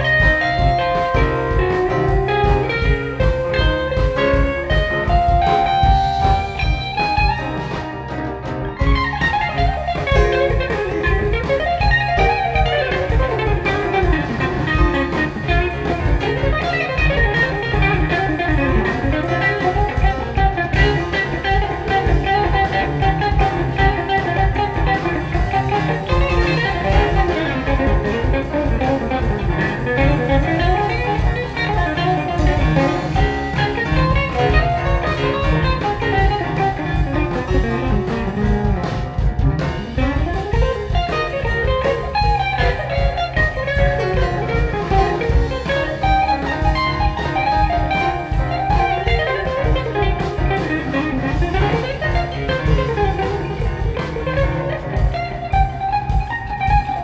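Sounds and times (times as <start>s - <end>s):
bass guitar: 0.0s - 57.0s
drums: 0.0s - 57.0s
electric guitar lead runs: 0.0s - 57.0s
keyboard: 0.0s - 57.0s.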